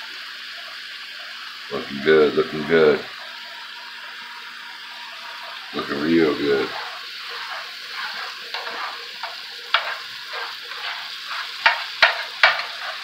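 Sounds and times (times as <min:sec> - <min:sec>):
food sizzling in a skillet: 0:00.0 - 0:13.0
spatula knocking against pan: 0:07.3 - 0:13.0.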